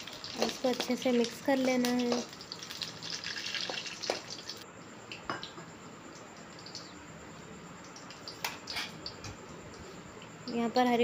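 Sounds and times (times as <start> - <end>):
chillies sizzling in oil: 0.0 - 4.7, 7.6 - 9.9.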